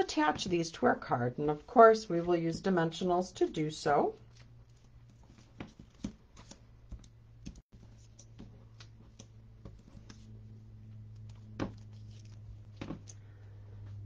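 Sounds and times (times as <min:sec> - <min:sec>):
paper clicks and rustles: 0:11.1 - 0:13.2.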